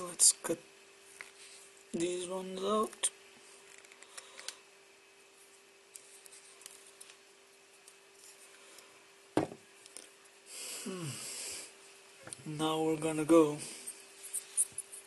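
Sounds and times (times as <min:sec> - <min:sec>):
faint steady hum: 0:00.0 - 0:15.0
thump: 0:09.4 - 0:09.6.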